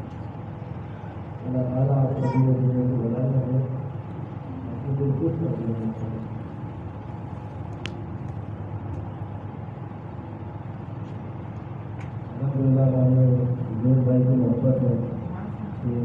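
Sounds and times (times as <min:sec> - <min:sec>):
low hum: 0:00.0 - 0:16.0
man chanting: 0:01.4 - 0:03.9, 0:12.4 - 0:16.0.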